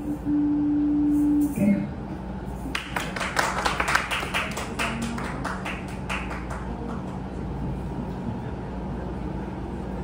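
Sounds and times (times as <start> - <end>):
people clapping: 2.7 - 7.4.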